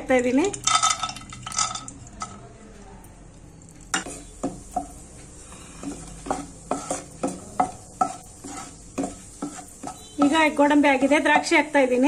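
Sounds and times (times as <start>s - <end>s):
faint sizzle of frying: 0.0s - 12.0s
spatula scraping and knocking pan: 4.0s - 11.8s.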